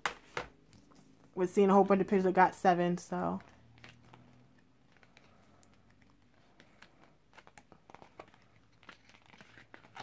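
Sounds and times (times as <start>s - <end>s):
book pages turning: 3.3s - 10.0s.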